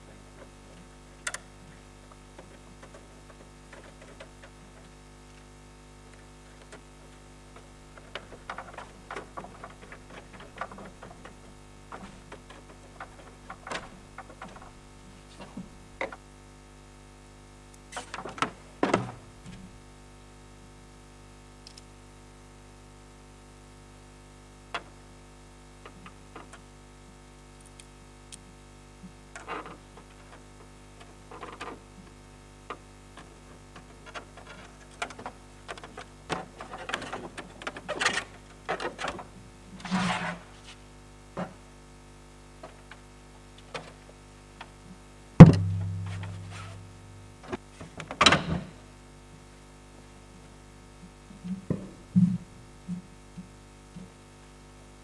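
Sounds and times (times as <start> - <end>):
loud ringing thump: 45.4 - 47.2
steady low hum: 45.4 - 47.5.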